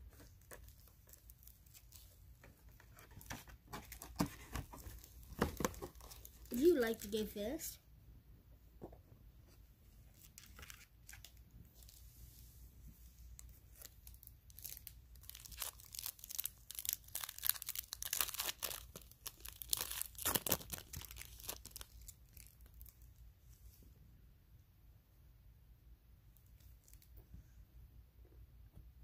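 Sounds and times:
card pack wrapper crinkling: 0:00.1 - 0:07.3, 0:10.2 - 0:12.0, 0:13.4 - 0:23.1.

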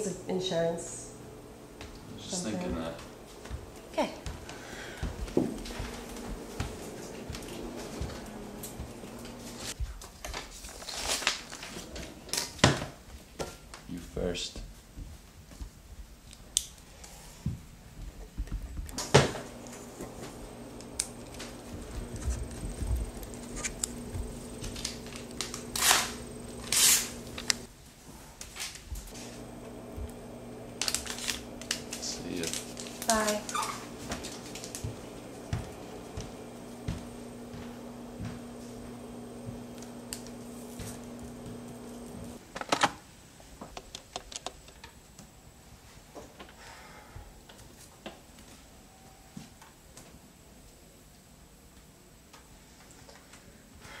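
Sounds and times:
steady low hum: 0:00.0 - 0:09.8, 0:19.0 - 0:27.7, 0:29.1 - 0:42.4
faint steady hum: 0:19.0 - 0:27.7
clicks and scratches: 0:20.8 - 0:27.7.

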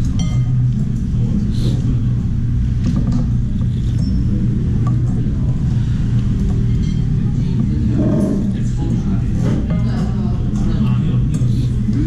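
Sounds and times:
spoon and chopsticks clinking bowl: 0:00.0 - 0:00.8, 0:06.7 - 0:07.1
low rumble of room noise: 0:00.0 - 0:12.0.

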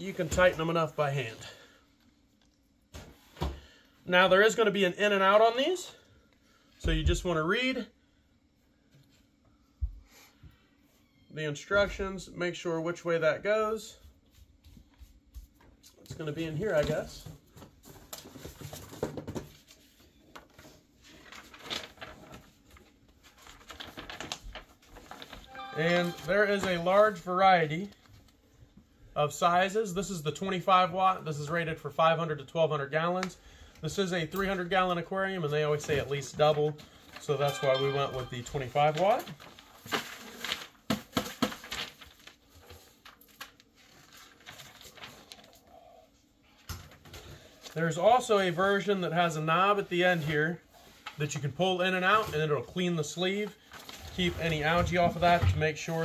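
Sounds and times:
paper rustling and crinkling: 0:15.4 - 0:28.4, 0:35.4 - 0:45.8, 0:46.6 - 0:56.0.

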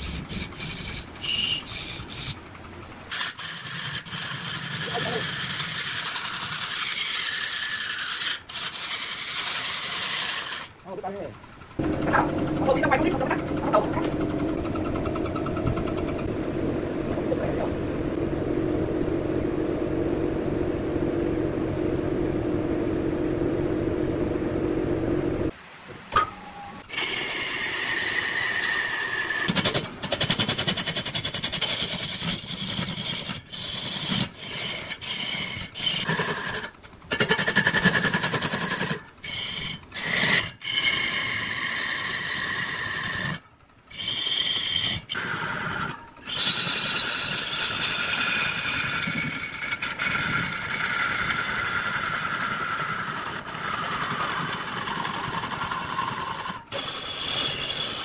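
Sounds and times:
wood lathe cutting with whine: 0:03.1 - 0:10.8, 0:26.9 - 0:58.0.

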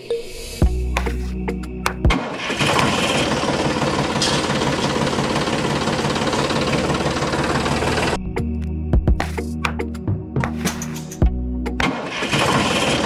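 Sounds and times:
tractor engine chugging: 0:02.1 - 0:08.2, 0:11.9 - 0:13.0.

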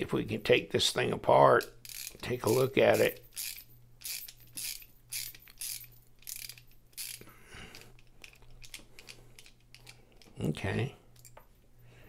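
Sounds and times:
ratcheting screwdriver clicking: 0:01.8 - 0:10.3.

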